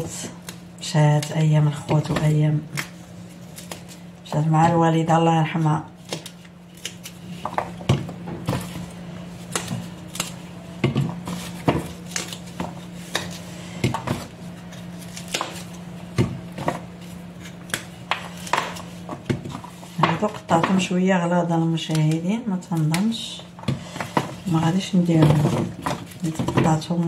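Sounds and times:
steady low hum: 0:00.0 - 0:27.0
bean pods snapping when cut: 0:09.5 - 0:10.4.

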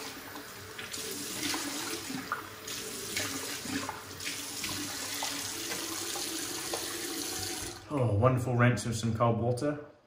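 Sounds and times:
tap water running into sink: 0:00.0 - 0:07.9.

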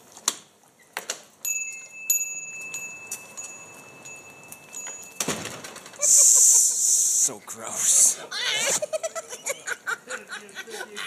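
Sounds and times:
high bell-like chime ringing: 0:01.5 - 0:06.2.

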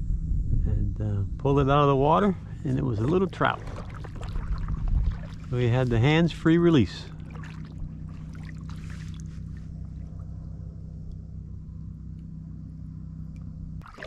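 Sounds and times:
steady low hum: 0:00.0 - 0:14.0
water lapping against hull: 0:02.0 - 0:11.2, 0:13.8 - 0:14.0.

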